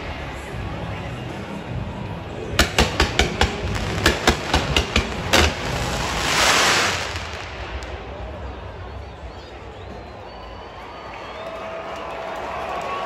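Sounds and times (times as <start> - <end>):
pyrotechnic bangs: 2.6 - 9.2
loud rush of noise: 2.6 - 9.8.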